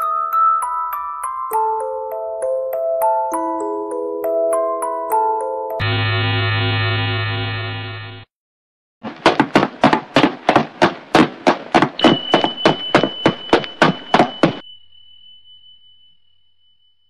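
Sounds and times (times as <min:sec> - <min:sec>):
sharp knocks: 0:09.0 - 0:14.6.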